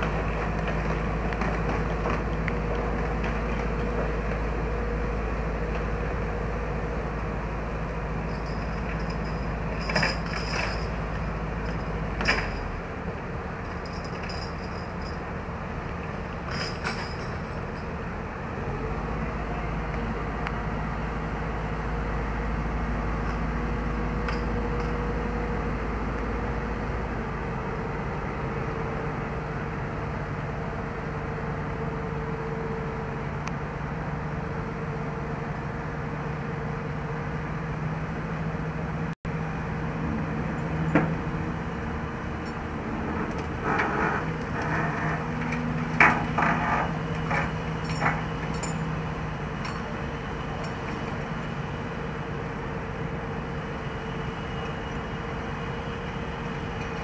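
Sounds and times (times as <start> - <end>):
metallic clanks: 43.2 - 49.0.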